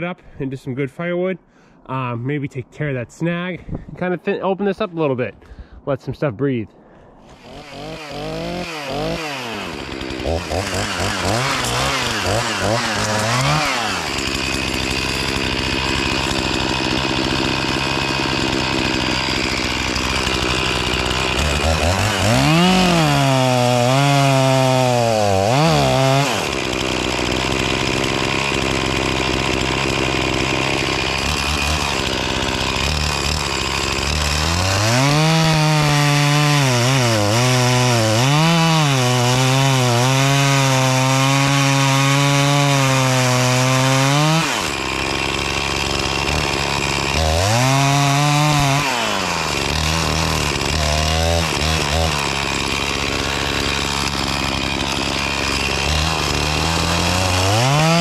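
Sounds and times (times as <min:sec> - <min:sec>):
chainsaw cutting wood: 0:07.2 - 0:58.0.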